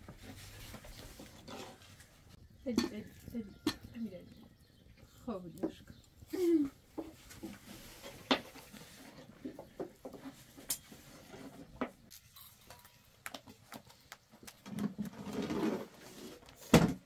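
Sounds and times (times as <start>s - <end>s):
rustling: 0.0s - 2.4s, 6.2s - 16.7s.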